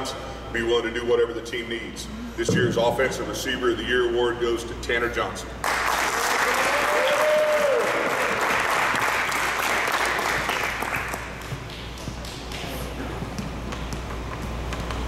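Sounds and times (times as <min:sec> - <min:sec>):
audience applauding: 0:05.6 - 0:12.8.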